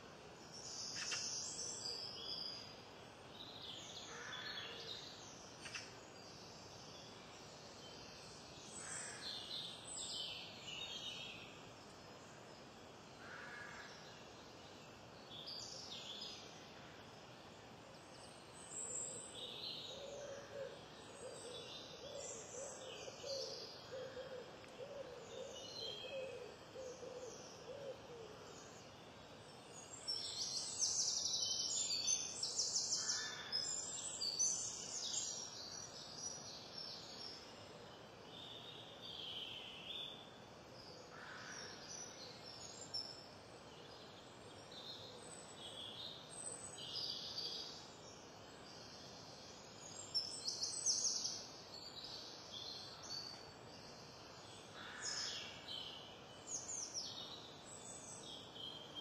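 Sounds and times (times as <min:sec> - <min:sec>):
faint steady hiss: 0:00.0 - 0:59.0
songbirds singing: 0:00.0 - 0:59.0.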